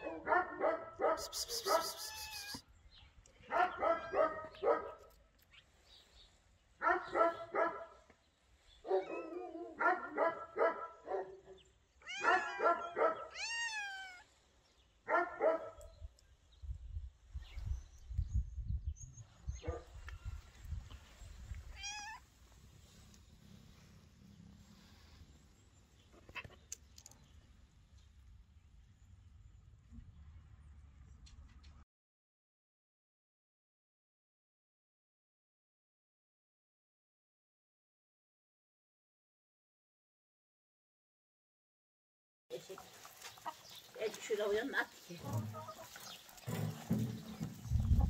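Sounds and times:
dog barking: 0.0s - 2.2s, 3.5s - 5.1s, 6.8s - 8.0s, 8.8s - 11.6s, 12.2s - 13.4s, 15.1s - 15.9s, 19.6s - 20.0s.

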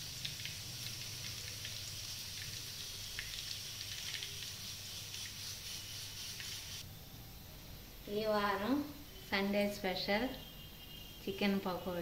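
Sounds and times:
deep-frying oil sizzling: 0.0s - 6.8s.

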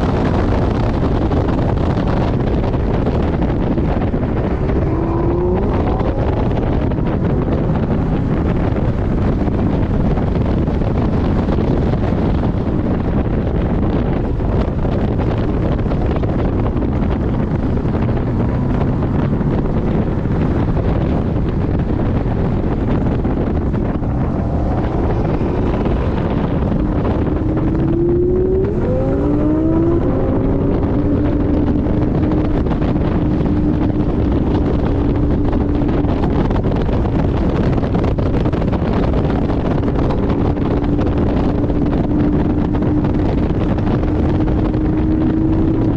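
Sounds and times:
heavy wind noise: 0.0s - 45.9s
road noise: 0.0s - 45.9s
car engine revving hard: 3.4s - 8.1s, 22.6s - 45.9s.

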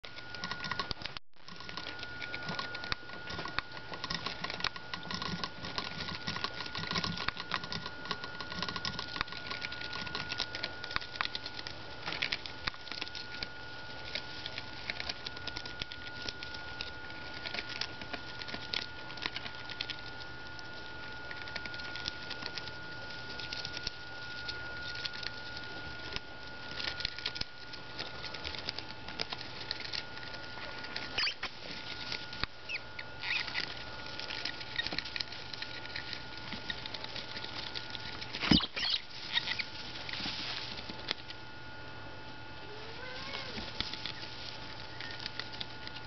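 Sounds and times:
rodents gnawing a leaf: 0.0s - 46.0s
shuffling in wood shavings: 33.4s - 41.4s, 42.6s - 46.0s.

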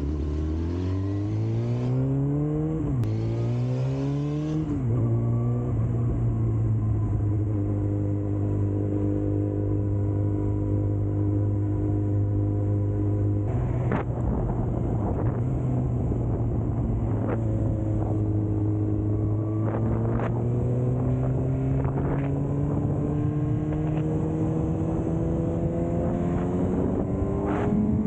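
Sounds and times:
wind noise on microphone: 13.5s - 28.0s.

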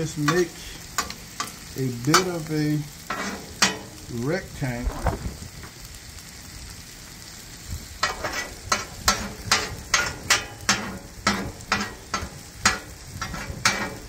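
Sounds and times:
metal spatula scraping griddle: 3.0s - 4.0s, 8.0s - 14.0s.

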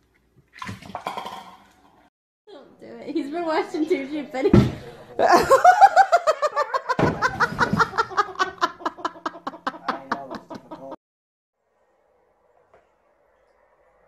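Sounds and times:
person laughing hard: 5.2s - 11.0s.

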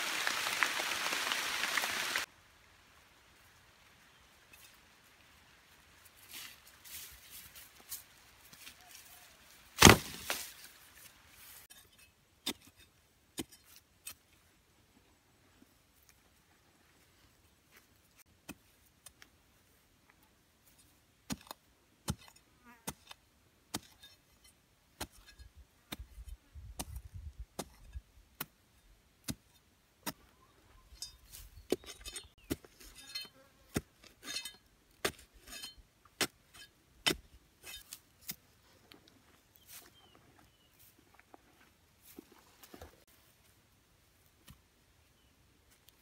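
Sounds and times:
machete chopping into soil: 9.8s - 10.6s.

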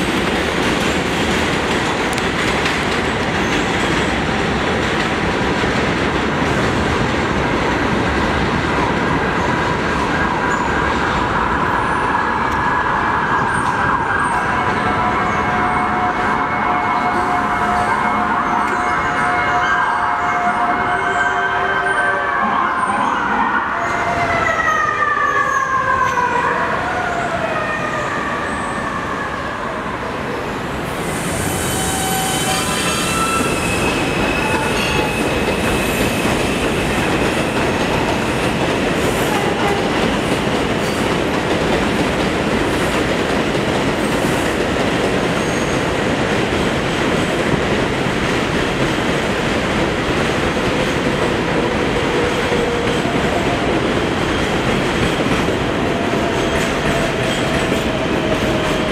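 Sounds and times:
train wheels rumbling on rails: 0.0s - 19.4s, 30.1s - 58.9s
high wheel squeal: 31.0s - 37.1s.

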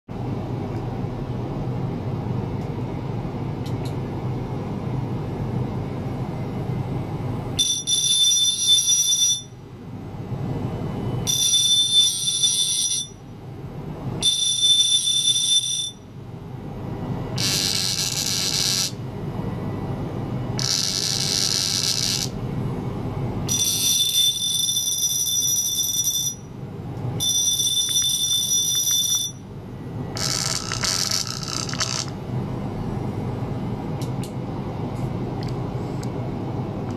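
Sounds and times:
steady low hum: 0.1s - 36.9s
electric toothbrush buzzing: 17.4s - 19.0s, 20.6s - 22.4s, 30.2s - 32.1s.

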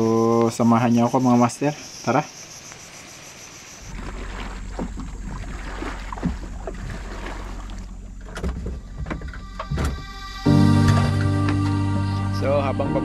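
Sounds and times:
water splashing around hull: 2.8s - 11.6s
steady low hum: 3.8s - 11.4s.

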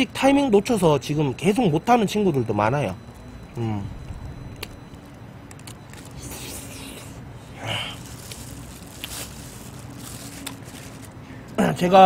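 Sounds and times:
low steady hum: 0.0s - 11.7s.

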